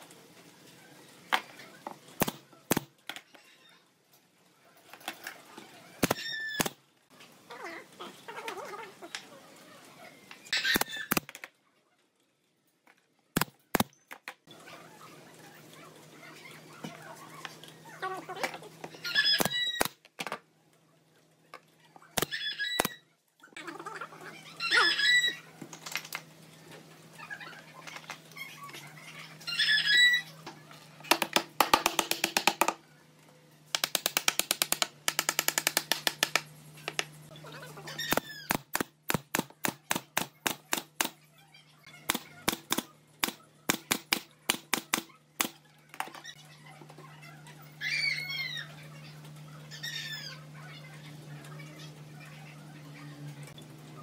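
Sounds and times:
pneumatic nailer firing: 2.2s - 2.9s, 6.0s - 6.8s, 10.6s - 11.4s, 38.1s - 41.2s, 42.1s - 45.6s
loud animal calls: 22.1s - 25.5s, 27.1s - 30.4s, 47.4s - 51.2s.

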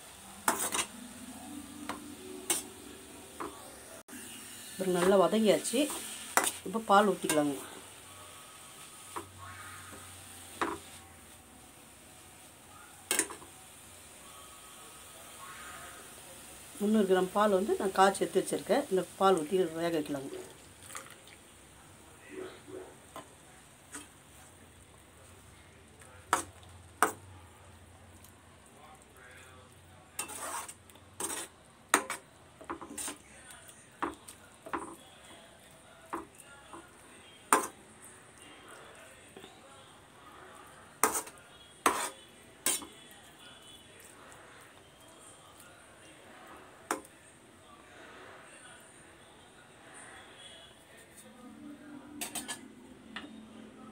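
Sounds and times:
metal spoon scraping steel pan: 0.4s - 1.0s, 1.9s - 2.7s, 30.2s - 32.2s, 41.0s - 42.9s.

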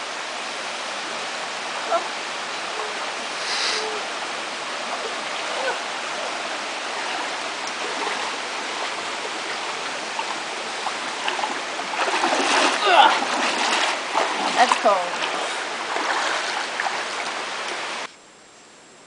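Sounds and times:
water rushing in rocky creek: 0.0s - 18.1s
feet splashing in water: 4.7s - 18.1s.

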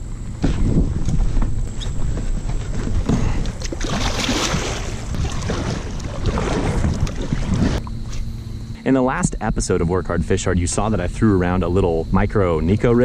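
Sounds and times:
wind rumble on microphone: 0.0s - 13.0s
kayak paddle splashing: 2.8s - 7.9s.

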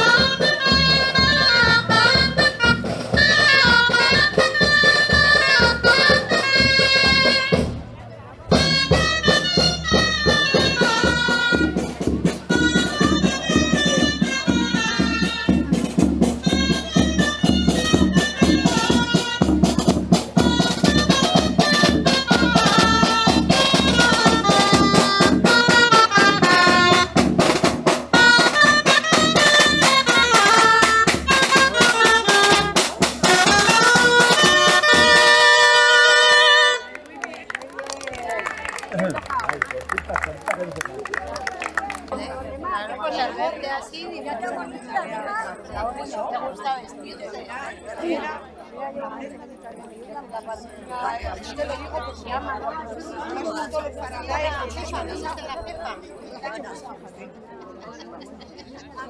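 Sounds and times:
shawm playing folk dance tune: 0.0s - 44.0s, 50.9s - 56.1s
snare drum beats: 8.5s - 36.0s.

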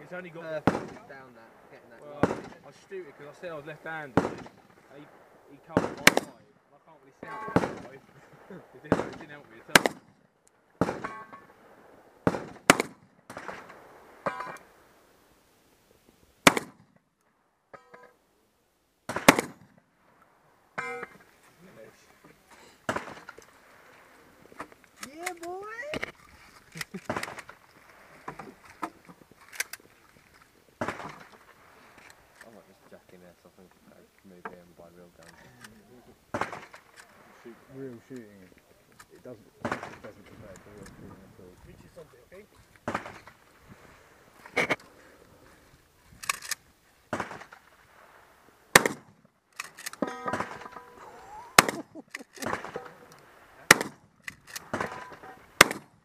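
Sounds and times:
faint background hiss: 0.0s - 56.0s
shotgun shots: 0.4s - 6.5s, 7.2s - 10.1s, 10.8s - 14.7s, 16.4s - 16.9s, 19.1s - 19.8s, 22.8s - 23.8s, 27.0s - 27.6s, 30.8s - 31.3s, 36.3s - 37.5s, 39.6s - 40.8s, 42.8s - 43.4s, 46.2s - 47.6s, 48.7s - 56.0s.

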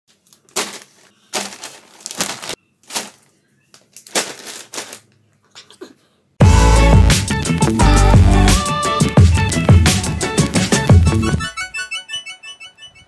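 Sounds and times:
plastic bags crinkling: 0.1s - 5.2s
music with a beat: 6.4s - 11.6s.

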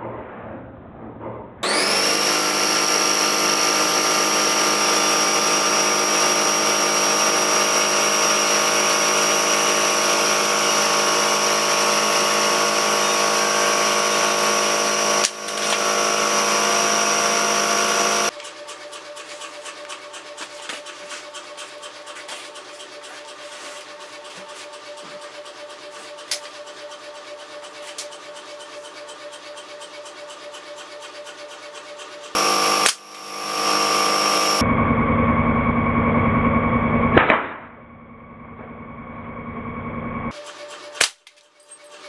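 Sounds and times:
electric motor whining: 1.6s - 18.7s, 30.5s - 34.6s.

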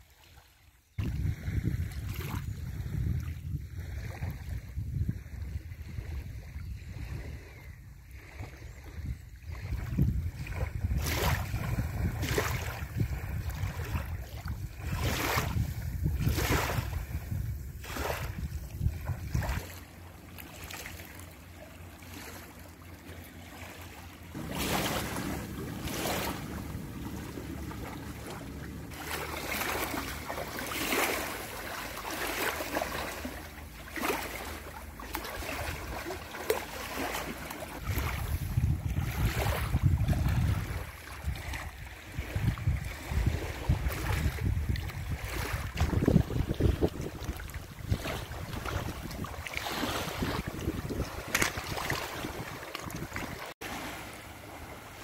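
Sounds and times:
feet wading through water: 0.0s - 55.0s
small waves lapping: 0.0s - 55.0s
wind buffeting microphone: 1.0s - 19.8s, 35.2s - 53.5s.

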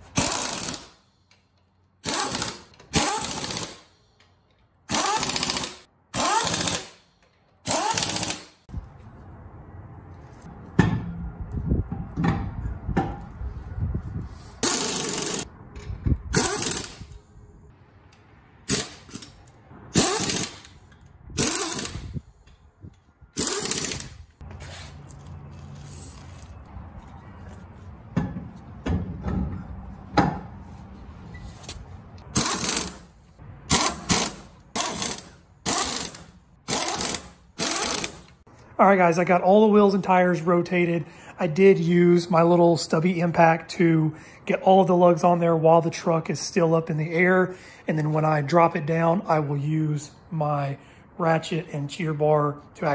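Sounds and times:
pneumatic impact wrench: 0.0s - 1.0s, 2.0s - 4.0s, 4.9s - 8.6s, 14.6s - 15.5s, 16.3s - 17.2s, 18.6s - 19.3s, 19.9s - 20.8s, 21.4s - 22.2s, 23.4s - 24.3s, 32.3s - 33.1s, 33.7s - 38.4s
wheel knocking and scraping: 23.4s - 33.2s.

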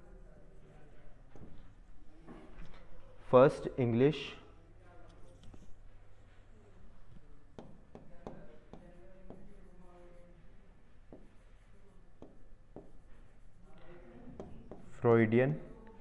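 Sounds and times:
pen tapping and scratching screen: 11.0s - 15.0s.

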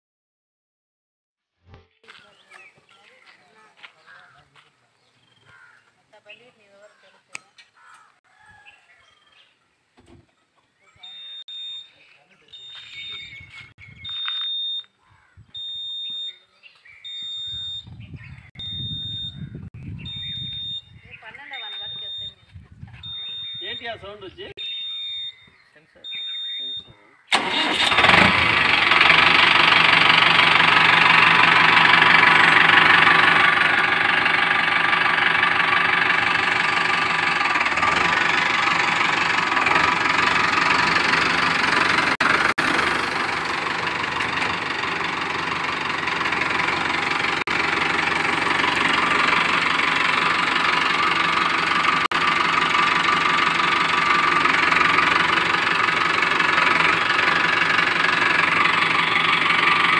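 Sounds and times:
tractor diesel engine running: 11.0s - 16.3s, 17.1s - 25.5s, 26.1s - 59.9s.

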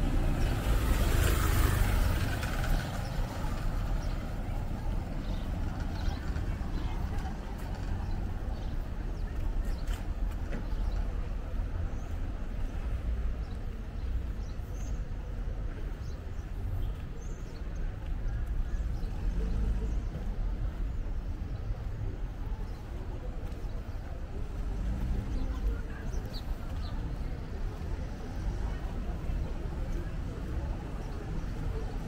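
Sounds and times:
distant voices: 0.0s - 12.5s
distant traffic: 0.0s - 32.0s.

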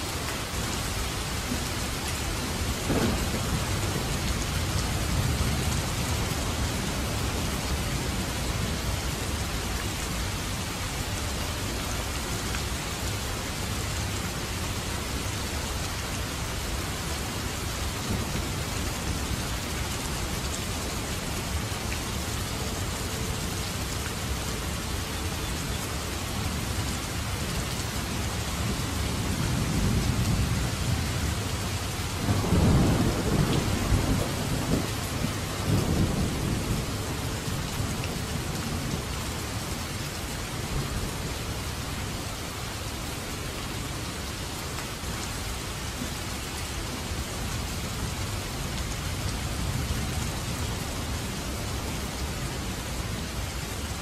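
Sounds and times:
steady rain: 0.0s - 54.0s
thunder rumbling: 2.4s - 8.7s, 32.2s - 39.1s.

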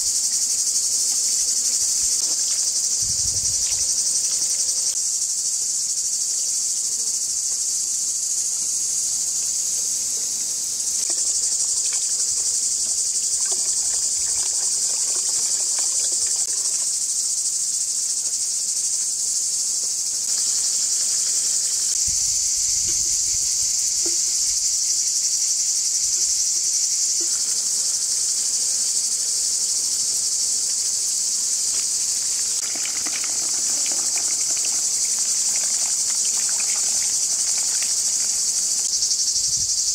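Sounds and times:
insects chirping: 0.0s - 39.9s
water splashing into a bowl: 13.4s - 16.6s, 32.5s - 38.6s.

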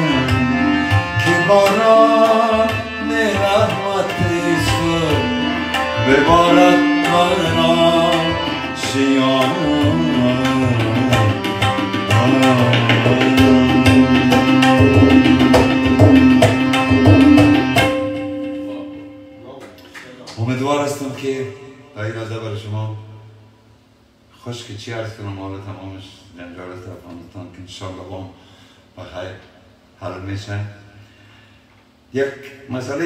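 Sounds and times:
man singing: 0.0s - 17.9s
tabla rhythm: 0.0s - 19.4s
harmonium: 0.0s - 19.5s.

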